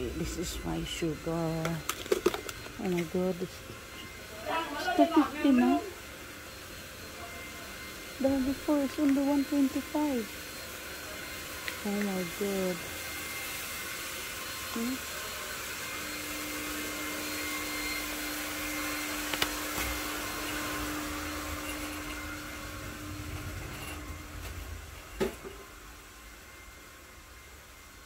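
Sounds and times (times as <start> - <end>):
machinery whirring hiss and hum: 0.0 - 28.0.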